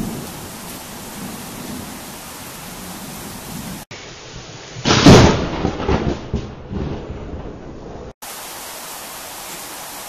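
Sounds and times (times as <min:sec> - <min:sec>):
rain hiss: 0:00.0 - 0:05.5, 0:08.2 - 0:10.0
thunderclap crack and rumble: 0:04.8 - 0:08.2.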